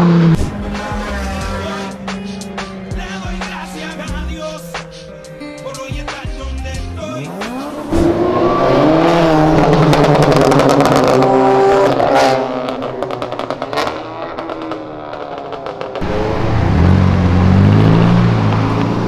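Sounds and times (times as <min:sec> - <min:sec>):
car engine accelerating: 0:00.0 - 0:05.0, 0:07.0 - 0:19.0
another engine revving: 0:07.3 - 0:19.0
exhaust crackles: 0:07.3 - 0:19.0.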